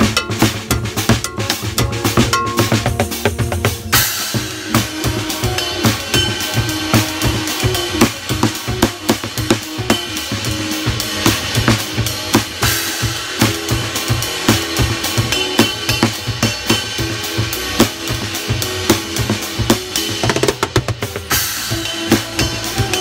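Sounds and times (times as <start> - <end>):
bass drum: 0.0 - 23.0
drum kit groove: 0.0 - 23.0
cymbal strokes: 3.9 - 20.2, 21.3 - 23.0.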